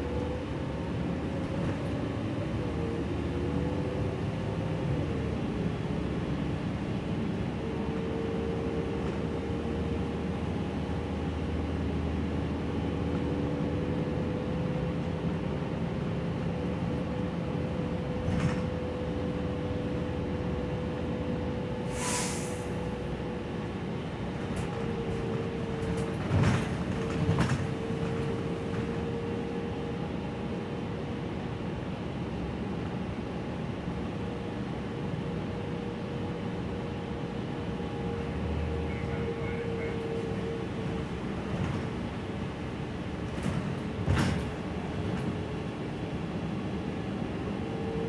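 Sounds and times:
bus engine droning with whine: 0.0 - 48.0
brief air hiss: 21.9 - 22.8.

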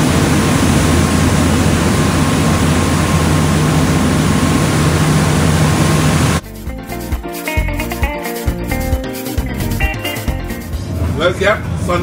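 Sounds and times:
rush of wind and water: 0.0 - 6.4.

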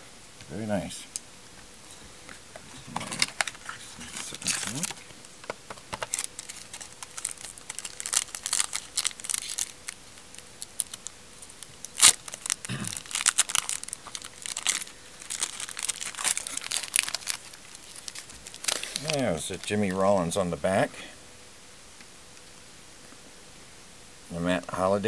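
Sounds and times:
foil wrapper crinkling and tearing: 2.8 - 20.0.

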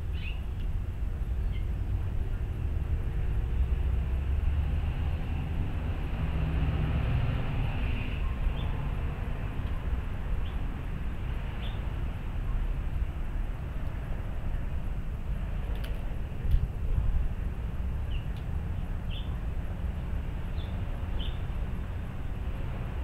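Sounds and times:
low background rumble: 0.0 - 23.0.

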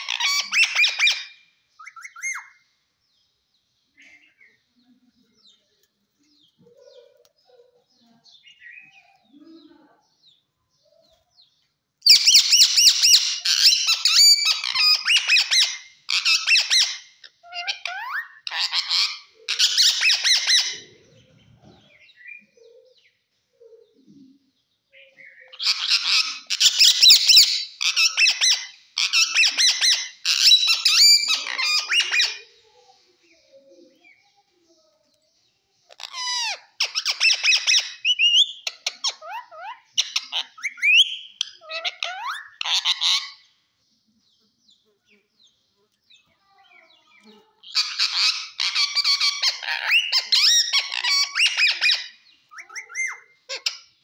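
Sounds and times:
parakeet harsh chattering calls: 0.0 - 2.5, 12.0 - 20.9, 25.5 - 32.6, 35.9 - 43.6, 47.6 - 54.0.

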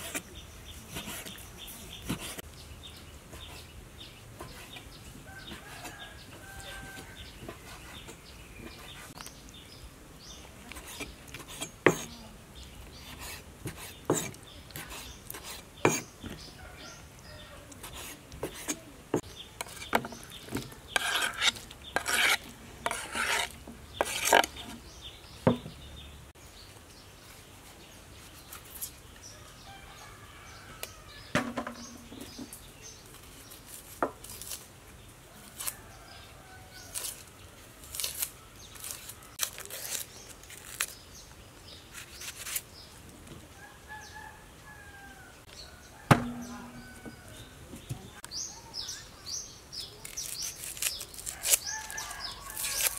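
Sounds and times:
onion skins rustling: 33.0 - 34.7, 36.8 - 41.1, 41.9 - 42.7, 49.9 - 52.9
onions knocking into metal bowl: 46.1 - 46.8.

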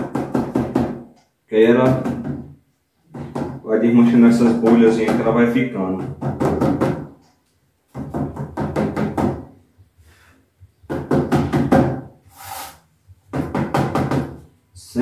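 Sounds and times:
short hiss: 12.3 - 12.9.

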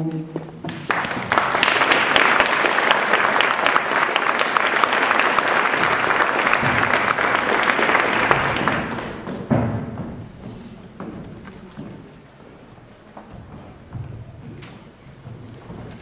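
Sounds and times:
audience applauding: 0.7 - 9.4.

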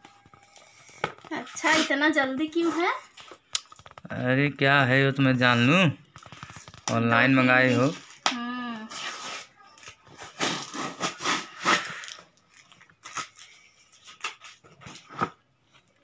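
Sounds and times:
packing tape ripping off cardboard: 8.0 - 12.2, 13.0 - 15.2.

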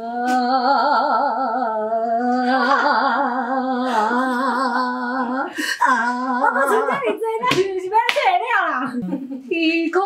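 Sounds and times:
woman singing with vibrato: 0.0 - 8.1.

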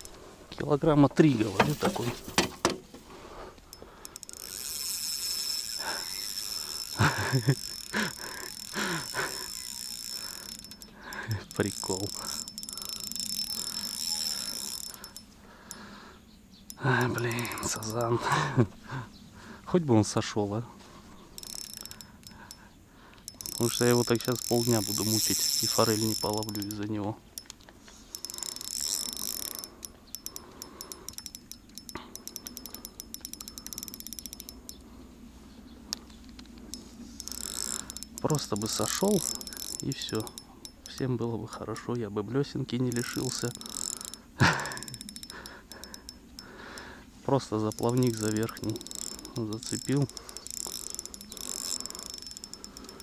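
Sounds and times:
insects chirring: 0.0 - 0.4, 3.2 - 19.6, 21.0 - 35.2, 35.8 - 41.6, 42.7 - 53.0
spinning reel clicking: 3.7 - 15.8, 16.7 - 18.1, 21.4 - 34.8, 36.6 - 41.1, 42.8 - 53.0.

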